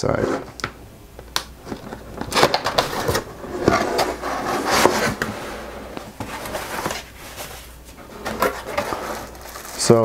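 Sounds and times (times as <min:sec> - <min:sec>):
cardboard box lid scraping: 0:02.3 - 0:09.8.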